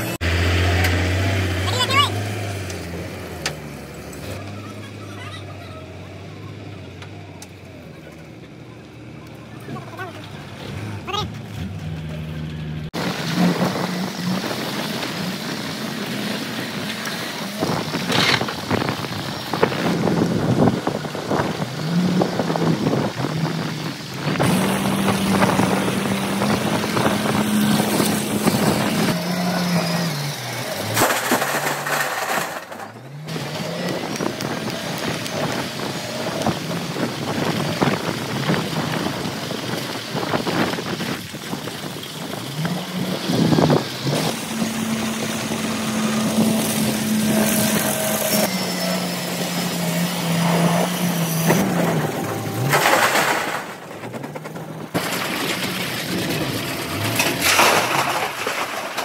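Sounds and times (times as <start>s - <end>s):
machinery clatter and knocking: 30.8s - 48.5s, 50.4s - 59.0s
heavy machinery motor hum: 41.9s - 57.6s.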